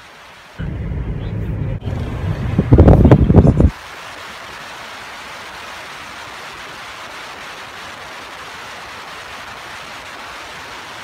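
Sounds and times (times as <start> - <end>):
air rushing in a car cabin: 0.6 - 4.5.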